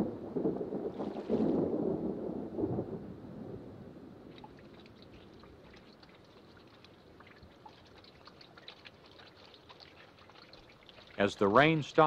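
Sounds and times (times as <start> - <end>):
rain splashing on water: 0.0 - 3.0, 4.2 - 12.0
water dripping: 4.3 - 12.0.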